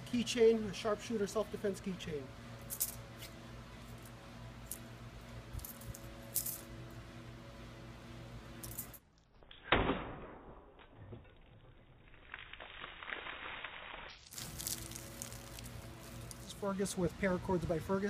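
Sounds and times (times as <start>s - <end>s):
keys jingling: 2.7s - 3.0s, 5.6s - 6.7s, 8.6s - 9.0s.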